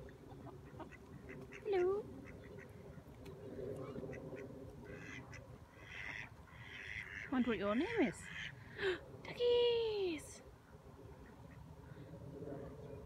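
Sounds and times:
ducks quacking: 0.3s - 2.9s, 3.8s - 8.6s.

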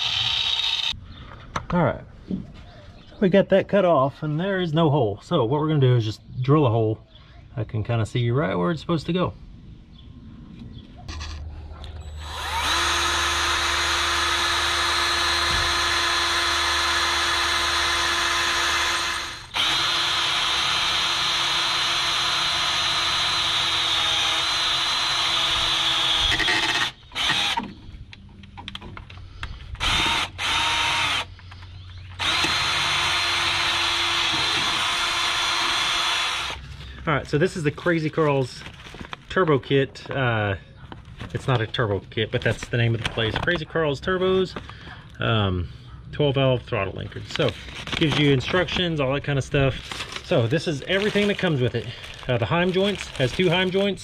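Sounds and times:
cordless drill whining: 0.0s - 1.0s, 12.0s - 27.7s, 29.8s - 36.6s.

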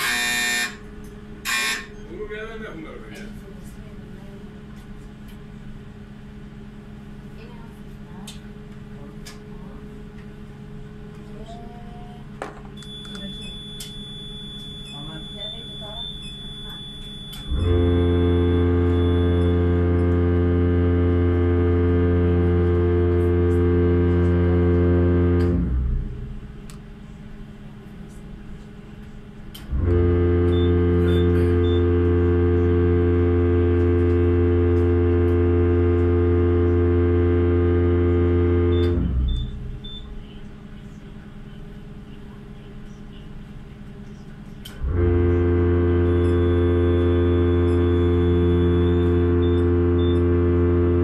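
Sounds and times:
ship whistle long blasts: 0.0s - 0.8s, 1.4s - 2.0s, 13.3s - 25.9s, 29.7s - 39.6s, 44.8s - 51.0s
low ship hum: 0.0s - 51.0s.

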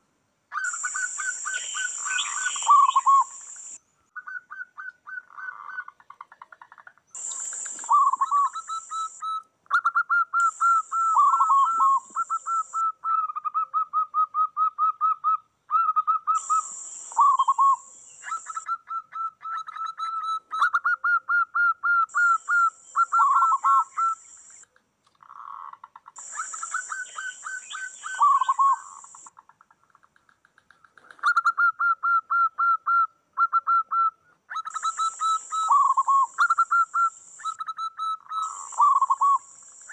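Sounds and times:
doves cooing: 10.4s - 12.8s, 25.2s - 29.3s.

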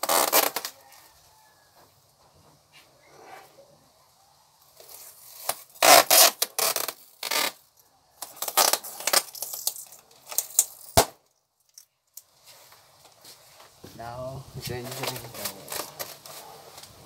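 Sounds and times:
adhesive tape rasping off roll: 0.0s - 0.9s, 4.8s - 10.7s, 14.8s - 16.9s.

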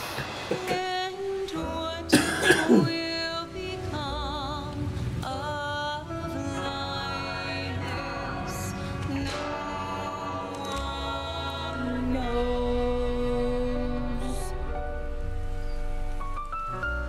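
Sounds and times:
film score music: 0.0s - 17.0s.

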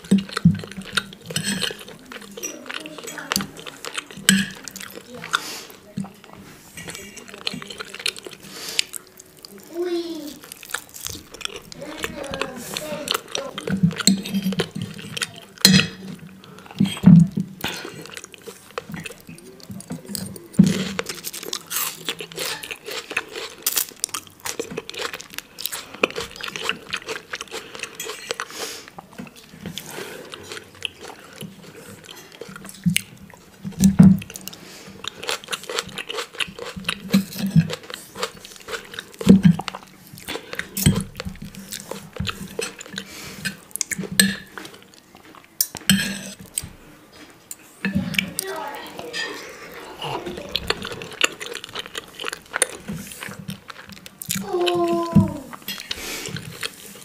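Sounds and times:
person chewing food: 0.0s - 57.0s
cutlery scraping ceramic plate: 0.8s - 2.6s, 13.8s - 16.1s, 45.6s - 46.5s, 49.1s - 49.6s.

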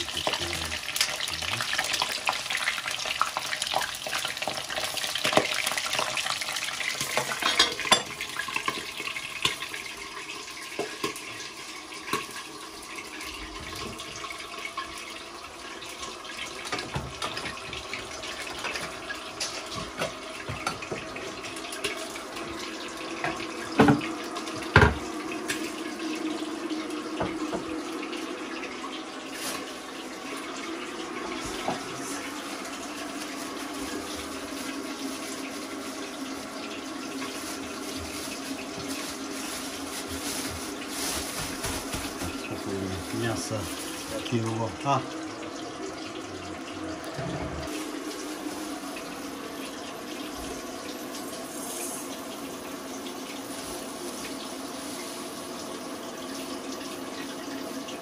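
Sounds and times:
tap water running into sink: 0.0s - 58.0s
kitchenware clinking: 7.0s - 8.8s.

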